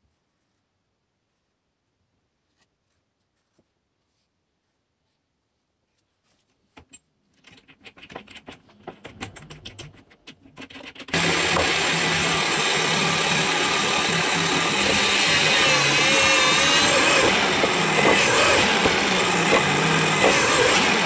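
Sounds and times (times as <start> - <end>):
clicks and knocks at drill chuck: 6.8 - 11.8
drill press motor running: 11.1 - 21.0.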